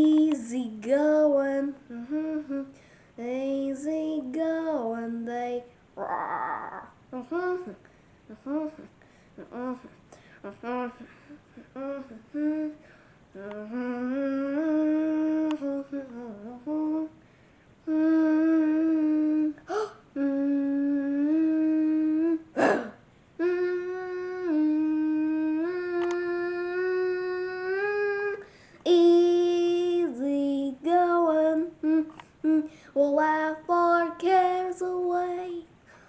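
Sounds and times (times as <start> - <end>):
person humming: 0.0 - 2.7, 6.0 - 17.2, 17.8 - 35.5.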